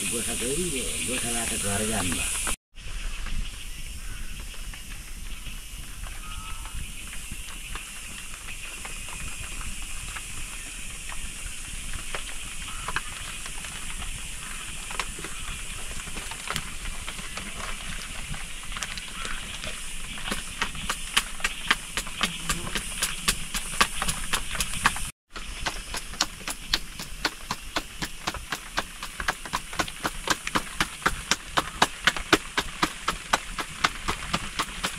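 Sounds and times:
log fire hissing and crackling: 0:00.0 - 0:02.6, 0:06.9 - 0:34.9
dough patted between palms: 0:20.2 - 0:34.9.

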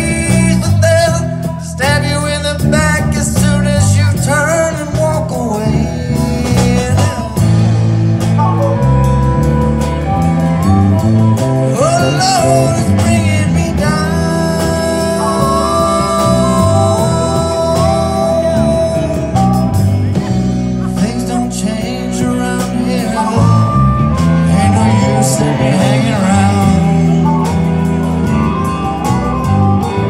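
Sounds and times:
electric guitar: 0:00.0 - 0:30.0
harmonica with bent notes: 0:05.8 - 0:30.0.

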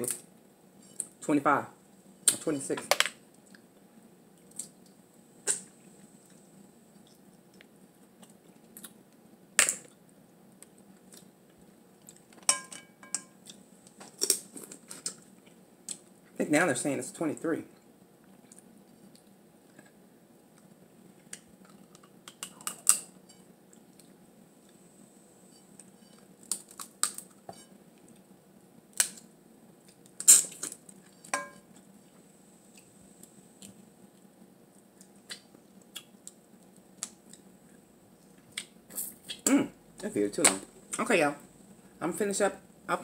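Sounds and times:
low steady hum: 0:00.0 - 0:43.0
crab shells cracking: 0:26.4 - 0:27.4, 0:28.9 - 0:29.3.

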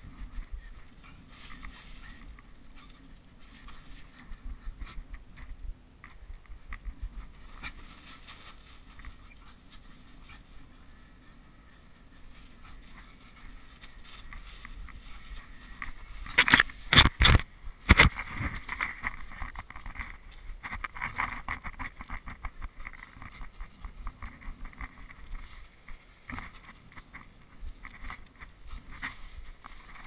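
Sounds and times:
tent canvas rustling and flapping: 0:06.9 - 0:10.7, 0:12.2 - 0:30.0.

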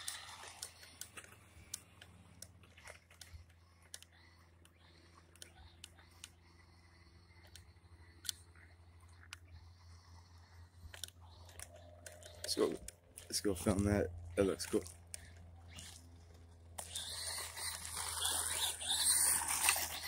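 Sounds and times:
electric toy truck whine: 0:00.0 - 0:12.9, 0:15.1 - 0:20.0
faint clicks and ticks: 0:00.0 - 0:17.0
low hum: 0:00.0 - 0:20.0.

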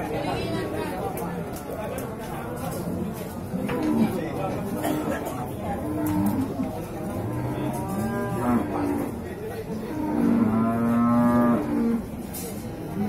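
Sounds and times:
bull mooing: 0:05.8 - 0:09.2, 0:09.9 - 0:12.1.

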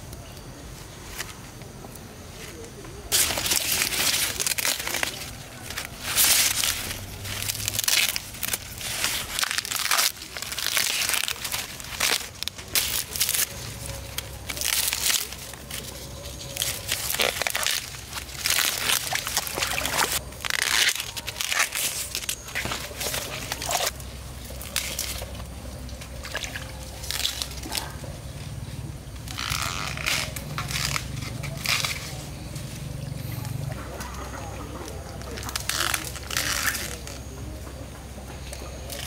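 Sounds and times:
steady low hum: 0:00.0 - 0:39.0
corn leaves rustling: 0:00.2 - 0:37.6, 0:38.2 - 0:39.0
feet wading through muddy water: 0:03.1 - 0:28.3.

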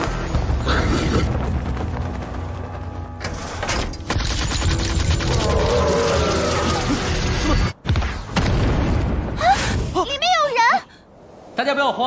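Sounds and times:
background music: 0:00.0 - 0:07.8
rotary gun rapid fire: 0:04.1 - 0:05.6.

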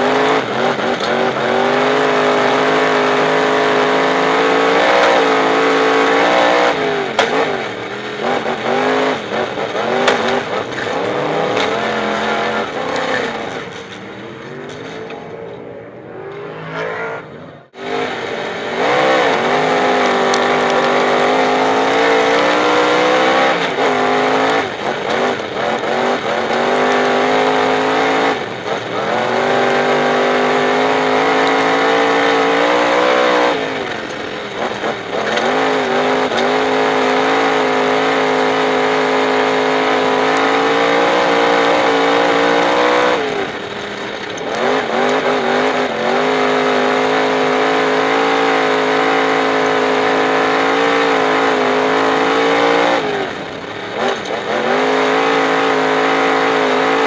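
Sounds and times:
race car engine running hard: 0:00.0 - 0:57.0.

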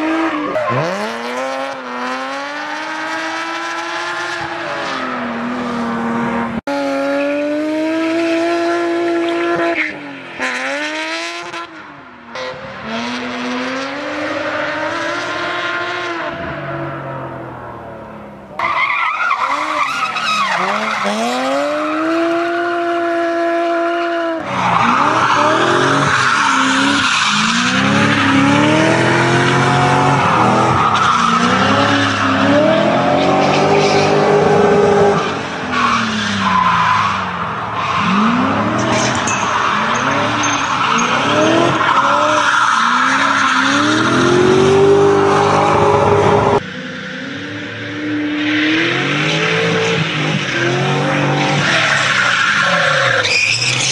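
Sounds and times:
car engines revving: 0:00.0 - 0:53.9
tyres squealing on tarmac: 0:18.6 - 0:22.0, 0:24.4 - 0:45.9, 0:51.2 - 0:53.9.

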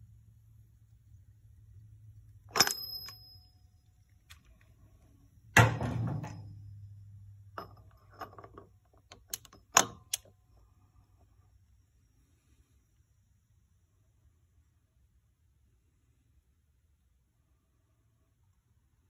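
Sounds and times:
faint steady hum: 0:00.0 - 0:19.0
metal tools clinking: 0:07.6 - 0:09.8.

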